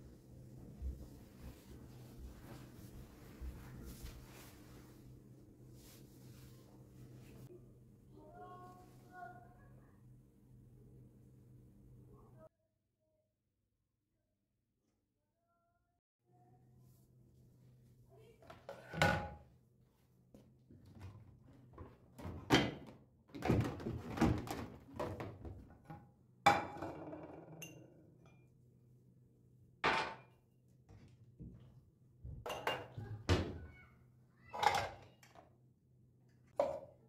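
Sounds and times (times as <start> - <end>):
dishes clunking and clinking: 26.5 - 28.5, 29.8 - 30.4, 32.3 - 33.6, 34.6 - 35.4.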